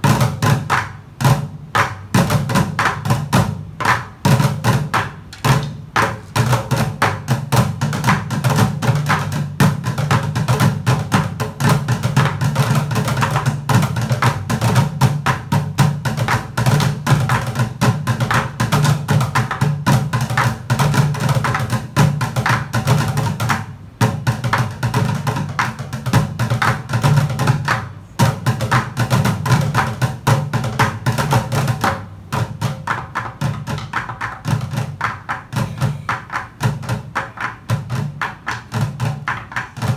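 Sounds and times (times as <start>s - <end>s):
drumsticks beating plastic buckets: 0.0s - 39.9s.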